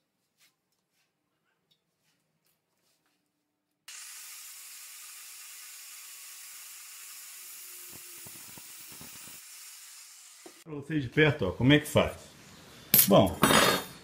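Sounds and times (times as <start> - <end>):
angle grinder cutting steel: 3.9 - 10.6.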